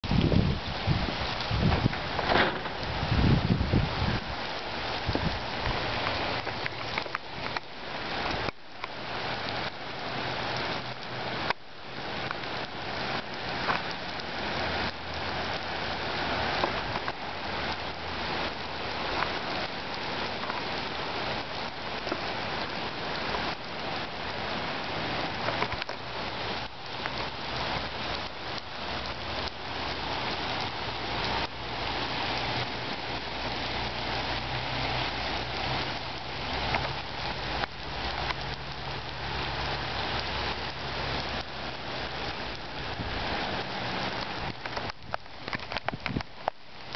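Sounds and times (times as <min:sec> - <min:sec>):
heavy rain on wet pavement: 0:00.0 - 0:46.9.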